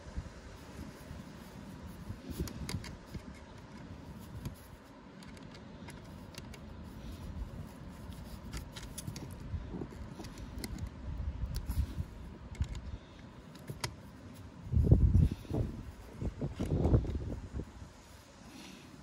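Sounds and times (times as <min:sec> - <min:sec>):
wind rumbling on microphone: 0:00.0 - 0:04.9, 0:06.0 - 0:18.8
small clicks and taps: 0:02.3 - 0:06.7.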